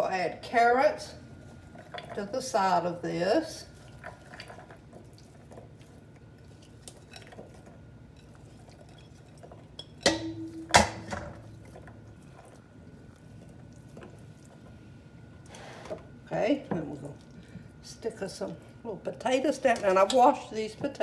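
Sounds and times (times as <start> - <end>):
ceramic bowl clinking in steel bowl: 9.8 - 11.3.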